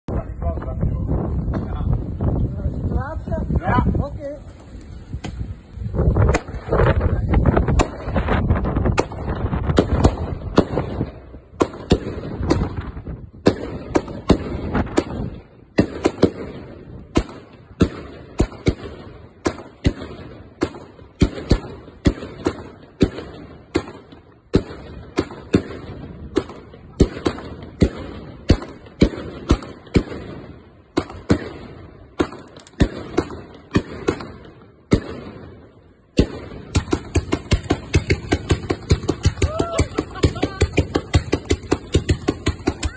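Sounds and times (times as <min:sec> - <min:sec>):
firework launch thumps and bangs: 0:04.5 - 0:35.6.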